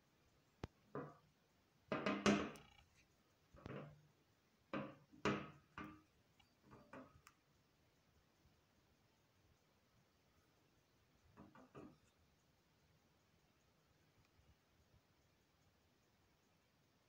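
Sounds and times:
metal plaque knocking on glass: 1.9 - 2.6, 4.8 - 6.0.

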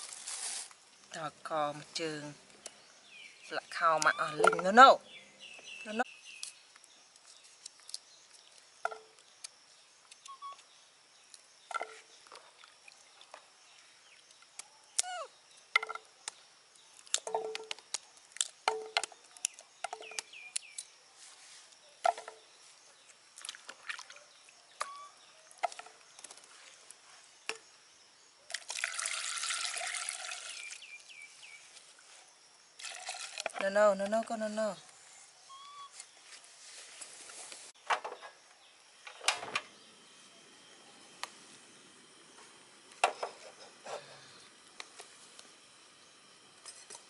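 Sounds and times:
water pouring into a pot: 28.5 - 30.8, 32.8 - 33.6.

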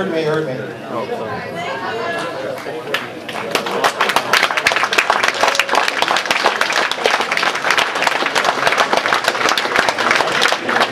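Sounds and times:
crowd applauding: 2.6 - 10.9.

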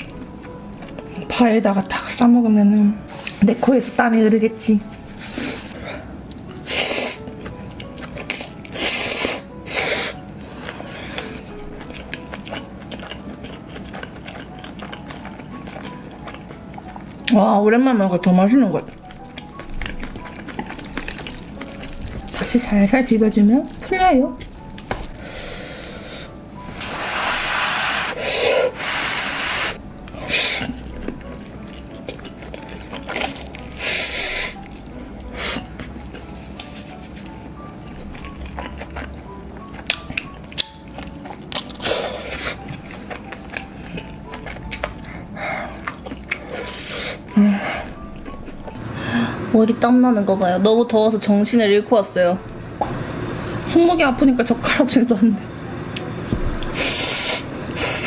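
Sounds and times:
wet chewing with clicks: 11.2 - 17.4, 18.8 - 25.3, 30.0 - 33.8, 35.8 - 45.2, 45.8 - 46.8
person slurping noodles: 26.8 - 30.8.

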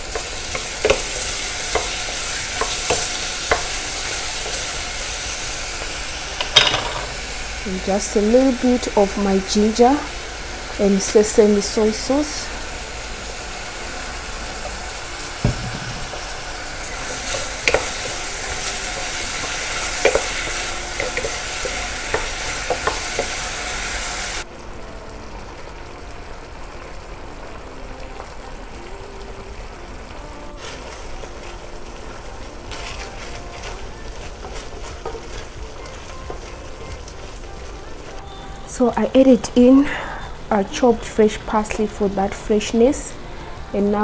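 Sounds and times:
food sizzling in a frying pan: 0.0 - 44.0
utensil knocking against pan: 15.4 - 18.3.

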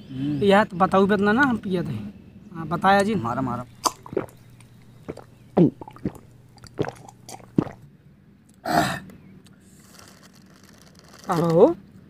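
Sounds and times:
man gulping swallows: 3.7 - 7.9.

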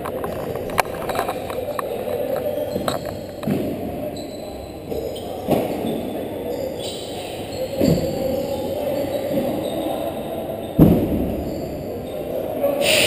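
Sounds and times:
lacrosse balls knocking: 0.0 - 3.8.

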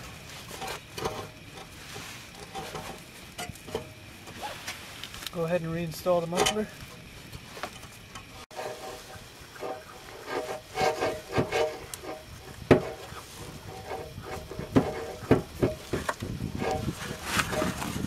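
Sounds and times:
rubbing and scraping of muffler: 0.0 - 18.0
metal knocks: 9.6 - 17.7.

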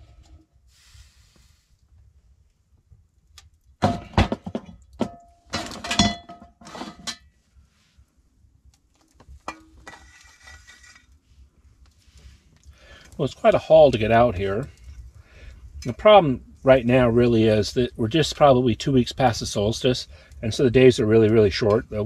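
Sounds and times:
metal cookware clinking: 5.2 - 7.3.

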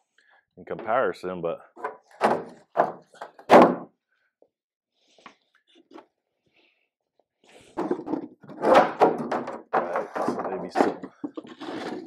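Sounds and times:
wooden box thunk: 1.8 - 3.9, 7.8 - 11.6
fender clattering on concrete floor: 7.8 - 11.5.

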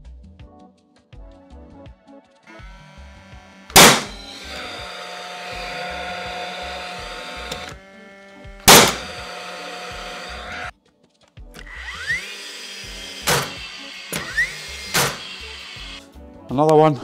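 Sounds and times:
fan whirring: 2.6 - 10.7
nail gun firing sharp crack: 3.7 - 4.8, 8.6 - 9.2, 13.2 - 15.3.

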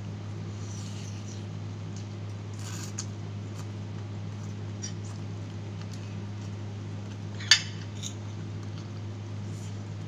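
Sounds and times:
low electrical hum: 0.0 - 10.0
person chewing: 2.5 - 6.6.

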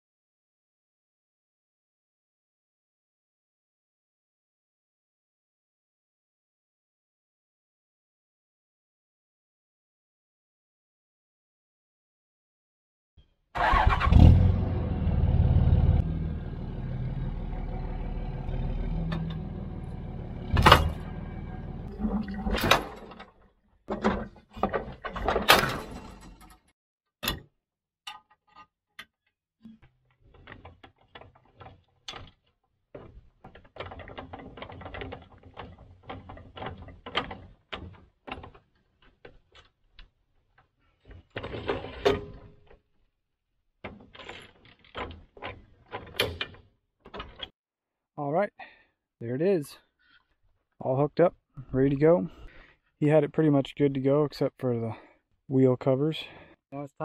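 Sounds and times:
pickup truck engine running: 14.4 - 21.9.

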